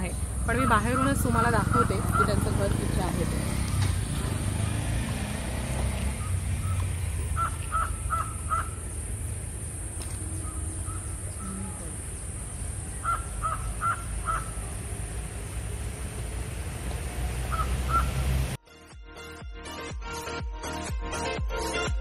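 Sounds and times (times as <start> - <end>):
crow cawing: 0.6 - 2.6, 6.6 - 8.9, 10.2 - 12.1, 13.0 - 14.7, 17.5 - 18.1.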